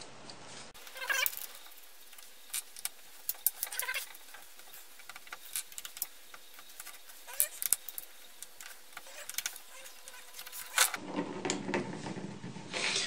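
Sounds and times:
short squeaks: 0.8s - 1.8s, 2.4s - 11.0s.

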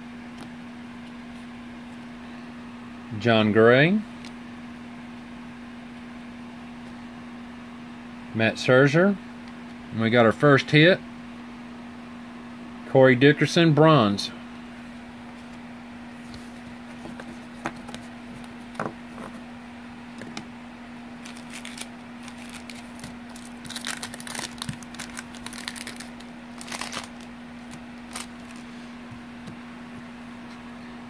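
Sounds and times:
steady low hum: 0.0s - 31.0s
trading cards clicking and rustling: 21.2s - 28.7s.

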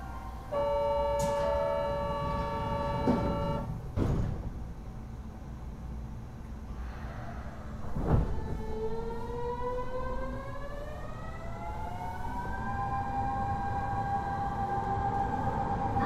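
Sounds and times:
train inverter whining: 0.0s - 5.8s, 7.6s - 16.0s
low train running rumble: 0.0s - 16.0s
thump: 4.0s - 4.5s.

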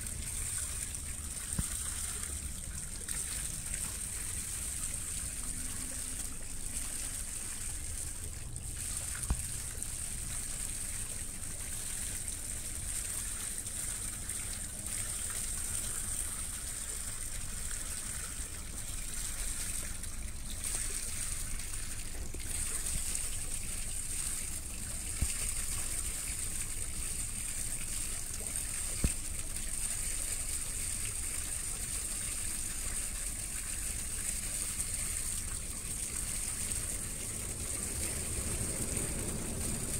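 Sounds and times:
water rushing and splashing: 0.0s - 15.8s, 32.6s - 39.9s.

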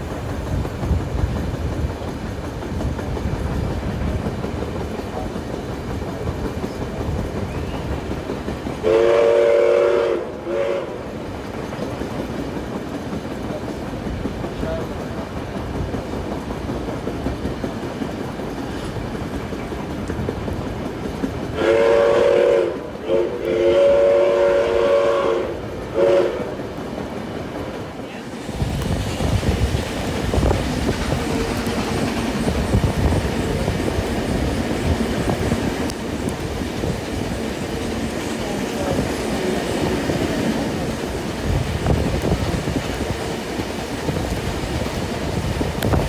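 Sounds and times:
train wheels rumbling on rails: 0.0s - 46.0s
steam locomotive whistle: 7.4s - 8.0s, 8.8s - 11.2s, 21.5s - 26.6s.

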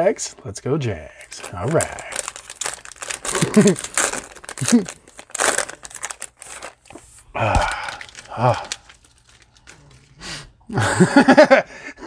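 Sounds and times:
plastic wrapper crinkling and tearing: 1.2s - 10.1s.

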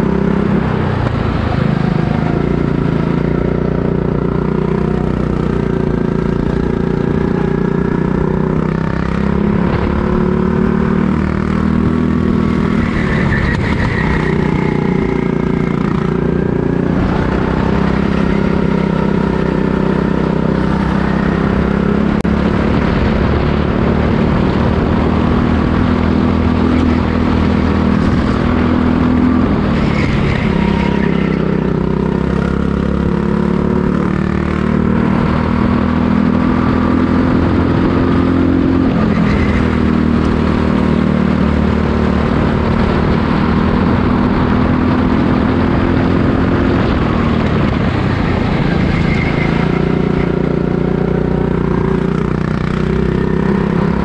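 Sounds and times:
go-kart engine revving: 0.0s - 54.0s.

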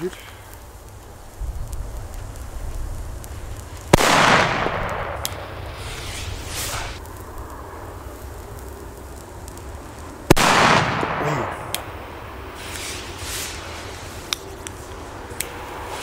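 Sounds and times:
firecracker bang with echo: 3.9s - 7.0s, 10.3s - 12.0s.

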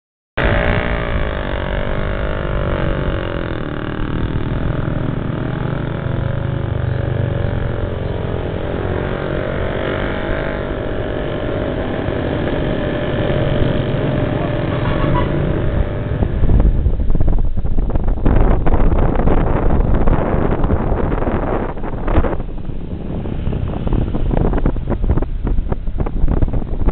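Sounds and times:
engine running: 0.4s - 26.9s
wind buffeting microphone: 0.4s - 26.9s.

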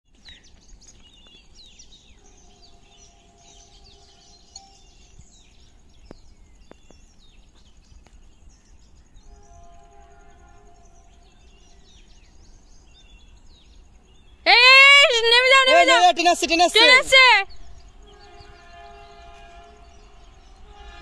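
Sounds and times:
birds chirping: 0.1s - 21.0s
distant train horn: 2.1s - 4.6s, 9.2s - 12.0s, 17.9s - 21.0s.

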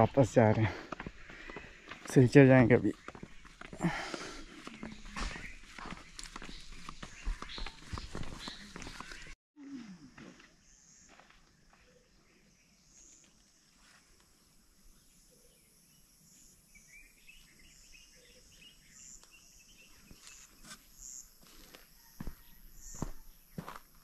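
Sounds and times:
bird chirps: 4.4s - 9.4s.

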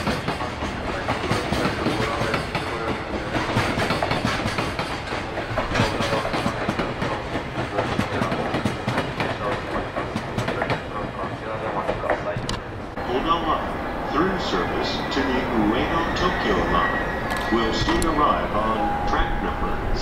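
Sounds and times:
wheels clacking over rail joints: 0.0s - 13.6s
steel wheels rushing on rail: 0.0s - 20.0s.

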